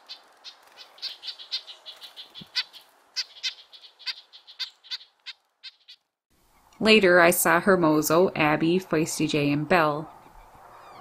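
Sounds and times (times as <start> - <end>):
nuthatches calling: 0.0 - 6.8.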